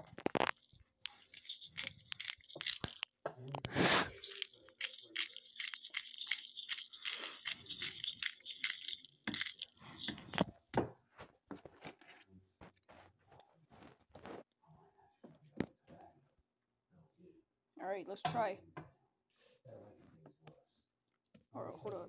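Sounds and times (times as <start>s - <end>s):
salt rattling from glass bottle: 0.0s - 3.1s, 4.0s - 10.5s.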